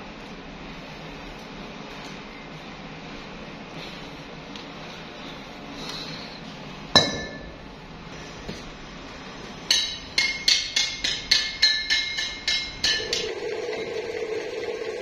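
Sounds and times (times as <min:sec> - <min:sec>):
hammer striking metal: 0:07.0 - 0:07.6, 0:09.7 - 0:13.4.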